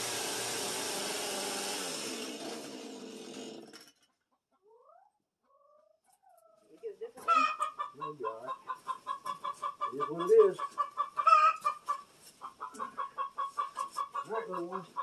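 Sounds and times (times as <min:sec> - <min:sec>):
chainsaw stopping: 0:00.0 - 0:04.0
chickens clucking: 0:04.2 - 0:15.0.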